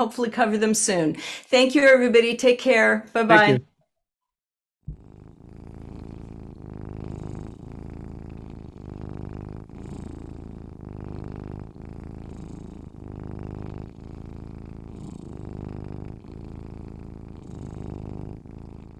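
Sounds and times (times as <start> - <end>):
cat purring: 4.9 - 18.9.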